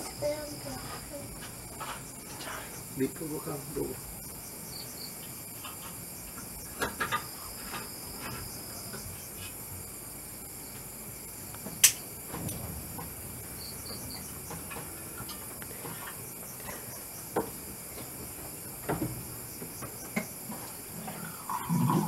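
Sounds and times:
crickets chirring: 0.0s - 22.0s
sharp click: 11.8s - 12.0s.

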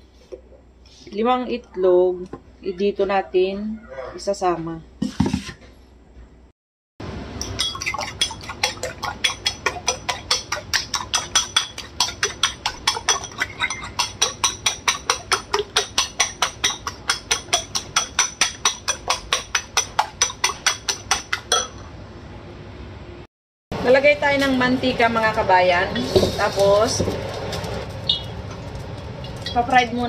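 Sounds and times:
utensil clinking against bowl: 7.4s - 21.8s.

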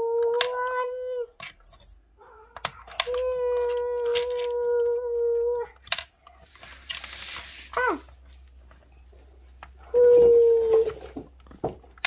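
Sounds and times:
plastic toy pieces clicking: 0.2s - 0.8s, 2.6s - 6.3s.

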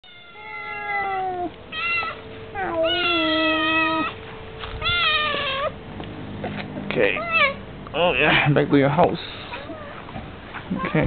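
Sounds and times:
cat meowing: 0.0s - 4.2s, 4.8s - 5.8s, 7.1s - 7.6s.

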